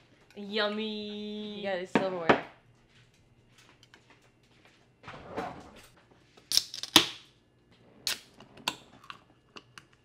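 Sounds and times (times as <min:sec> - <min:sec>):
cans cracked open: 0:06.5 - 0:07.2.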